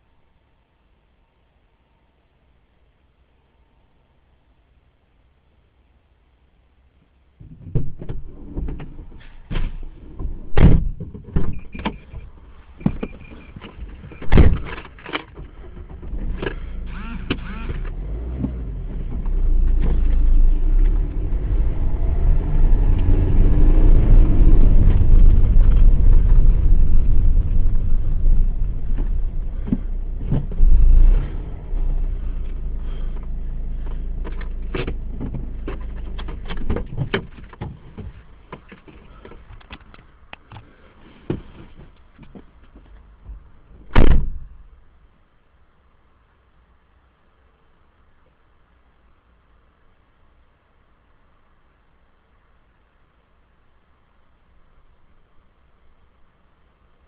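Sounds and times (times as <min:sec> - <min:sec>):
sharp knocks and clicks: 0:07.4 - 0:16.6, 0:33.9 - 0:40.7
vehicle passing by: 0:16.6 - 0:35.7.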